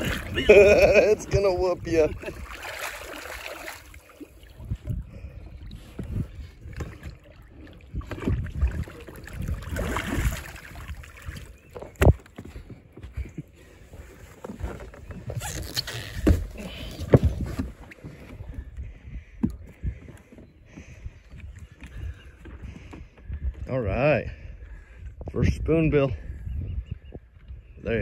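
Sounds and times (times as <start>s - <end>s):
water splashing: 0.0s - 12.1s.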